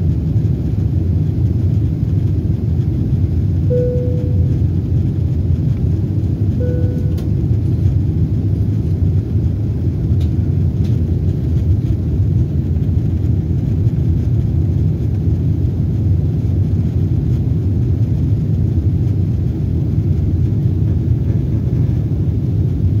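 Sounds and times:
airliner cabin rumble: 0.0 - 23.0.

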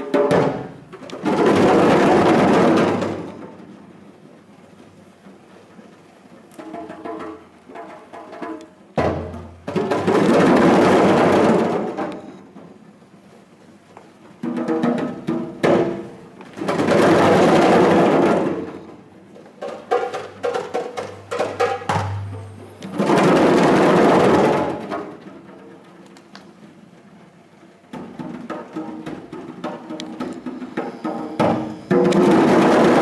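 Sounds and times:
djembe drums played by hand: 0.0 - 3.6, 6.6 - 12.1, 14.4 - 26.0, 27.9 - 33.0.

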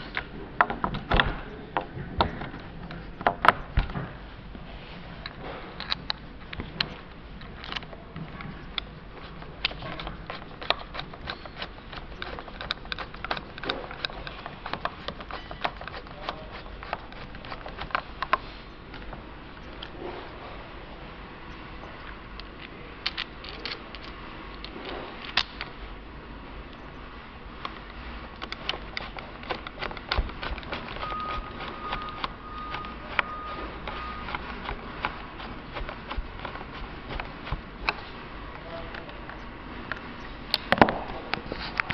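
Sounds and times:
screwdriver clicking and scraping: 5.2 - 20.4, 22.4 - 25.7, 27.6 - 38.2.

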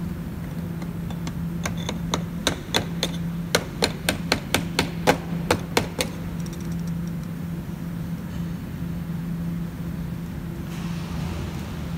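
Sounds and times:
steady low hum: 0.0 - 11.9
metal tool knocking on locking ring: 0.8 - 7.1.

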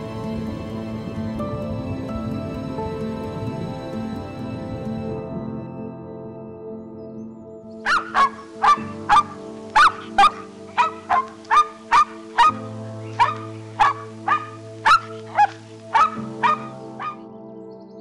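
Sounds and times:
background music: 0.0 - 18.0
dog barking: 7.9 - 12.6, 13.2 - 17.2.

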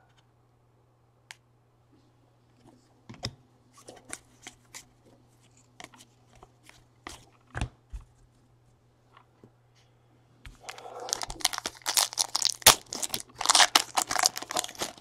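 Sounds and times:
trading cards being flipped through: 10.7 - 15.0.

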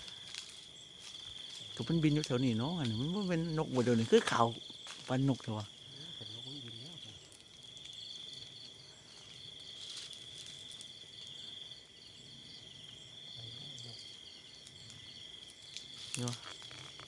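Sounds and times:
crickets trilling: 0.0 - 17.0
pulsing cricket chirp: 0.0 - 17.0.

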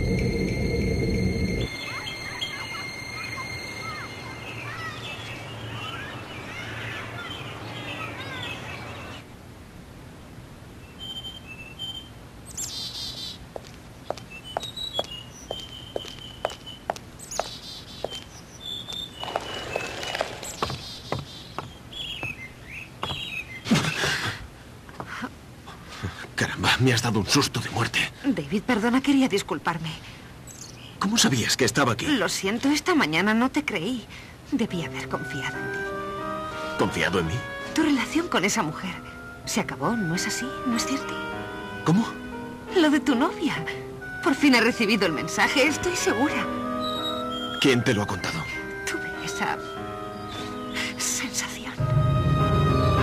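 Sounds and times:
ominous music: 0.0 - 4.9, 51.8 - 53.0
birds chirping and twittering: 0.0 - 9.3, 10.8 - 24.2, 30.4 - 31.2, 45.4 - 51.8
footsteps: 13.5 - 22.4.

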